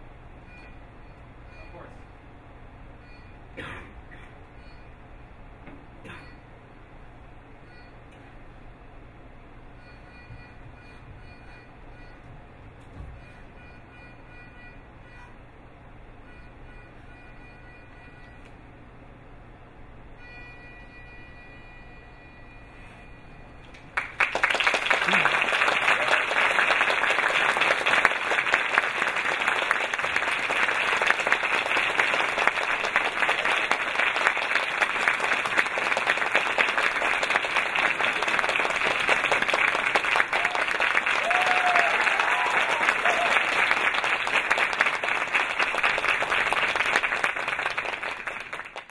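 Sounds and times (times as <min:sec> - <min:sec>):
audience applauding: 0:23.7 - 0:48.9.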